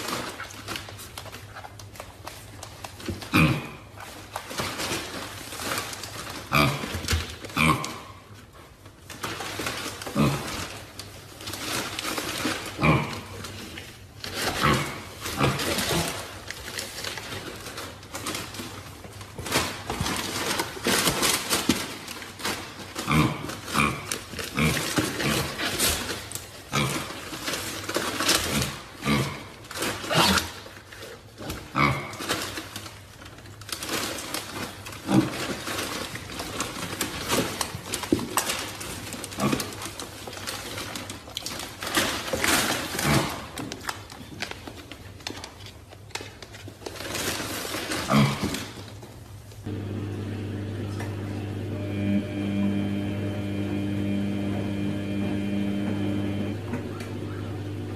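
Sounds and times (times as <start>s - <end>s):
pigs grunting and squealing: 3.3s - 4.0s, 6.5s - 8.2s, 10.1s - 10.7s, 12.7s - 13.4s, 14.5s - 16.3s, 23.0s - 25.8s, 26.7s - 27.2s, 28.5s - 30.6s, 31.7s - 32.3s, 35.0s - 35.5s, 43.0s - 43.6s, 48.0s - 48.7s.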